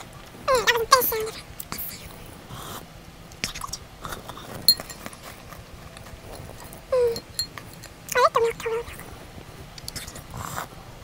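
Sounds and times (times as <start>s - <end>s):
metal spoon clinking glass bowl: 4.7s - 5.1s, 7.0s - 8.0s.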